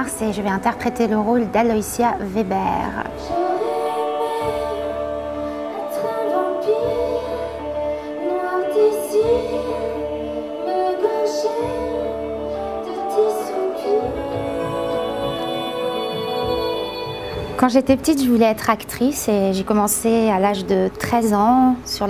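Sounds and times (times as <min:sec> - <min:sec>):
woman singing: 0:00.0 - 0:22.0
sustained bass notes: 0:09.2 - 0:18.9
percussion hits: 0:13.2 - 0:18.5.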